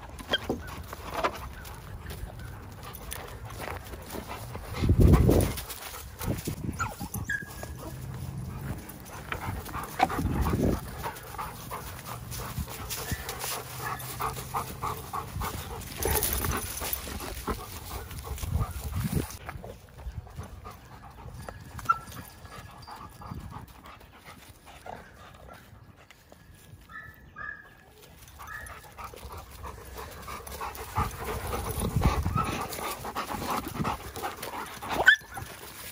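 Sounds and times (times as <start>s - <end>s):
dogs scuffling: 0.0s - 19.4s
dogs panting: 0.0s - 26.8s, 27.9s - 35.9s.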